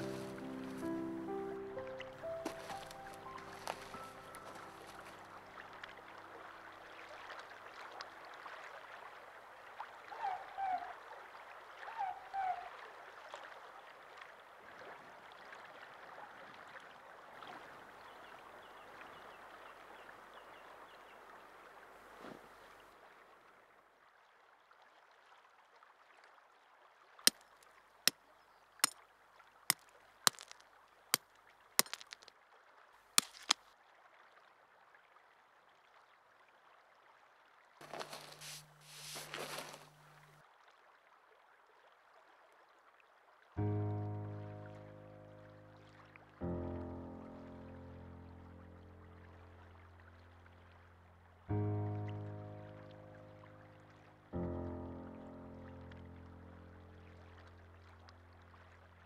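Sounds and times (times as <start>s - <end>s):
stream running: 0.0s - 59.0s
tent peg being hammered: 27.3s - 27.6s, 30.3s - 30.6s, 33.2s - 33.6s.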